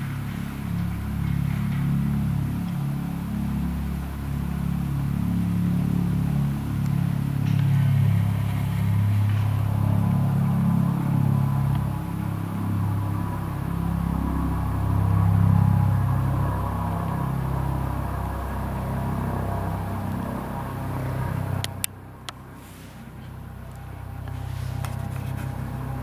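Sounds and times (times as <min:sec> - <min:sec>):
helicopter rotor drone: 0:00.0 - 0:26.0.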